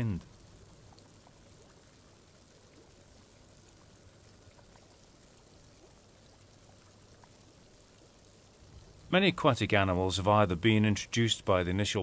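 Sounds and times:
tiny water drips: 0.0 - 12.0
water trickling and bubbling: 0.0 - 12.0.

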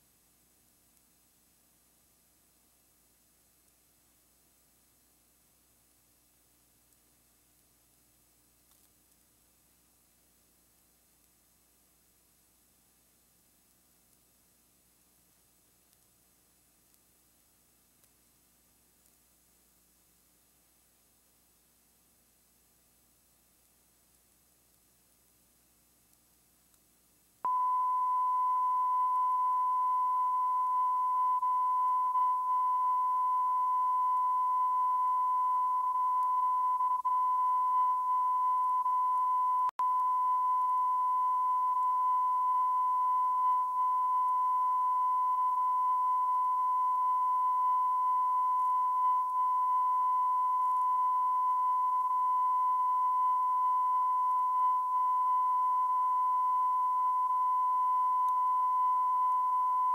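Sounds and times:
steady test tone: 27.5 - 59.9.

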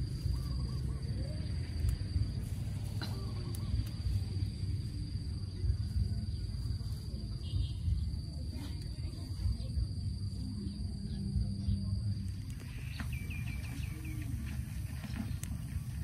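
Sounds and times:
high-pitched insect drone: 0.0 - 16.0
low rumble: 0.0 - 16.0
bird chirping: 12.6 - 16.0.

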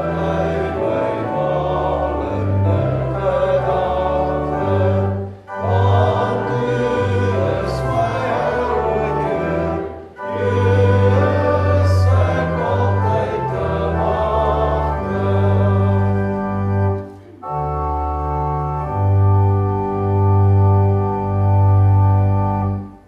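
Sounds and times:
congregation singing a psalm: 0.0 - 17.5
church organ chords: 0.0 - 23.0.

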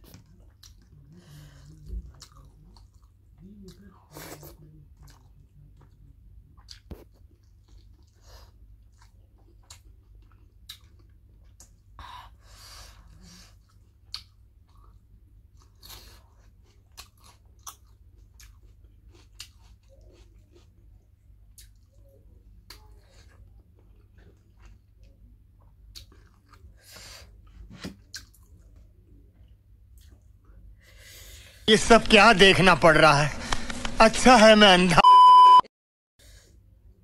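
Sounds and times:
person chewing: 0.0 - 12.0, 12.9 - 28.8, 29.4 - 30.3.

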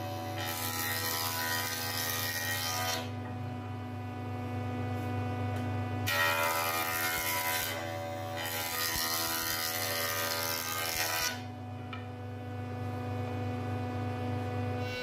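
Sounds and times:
jointer cutting whine: 6.0 - 11.5.

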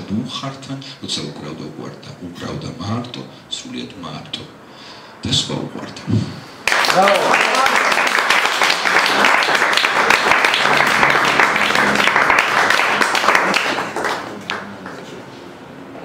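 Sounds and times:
audience applauding: 6.6 - 15.2.

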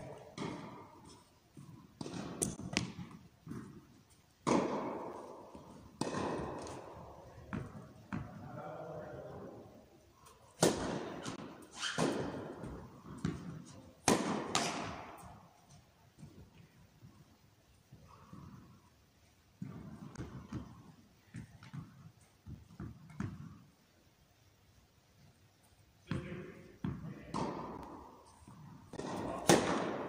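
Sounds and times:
racket hitting tennis ball: 0.1 - 8.4, 10.2 - 15.6, 19.6 - 23.6, 26.1 - 30.0
tennis ball bouncing on court: 0.1 - 8.4, 10.6 - 15.5, 19.6 - 23.6, 26.1 - 30.0.

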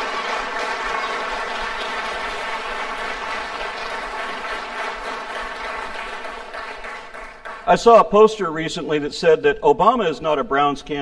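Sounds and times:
audience applause: 0.0 - 8.1.

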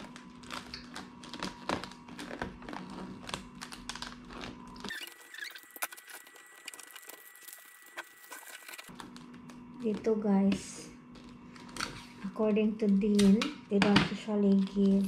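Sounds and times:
wrapping paper rustling and crinkling: 0.0 - 10.5, 11.1 - 12.3, 14.4 - 15.0.

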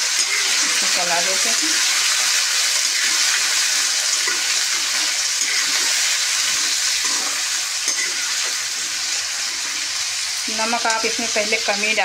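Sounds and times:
potatoes sizzling in hot oil: 0.0 - 12.0
metal ladle stirring: 0.1 - 1.0, 1.6 - 9.9.

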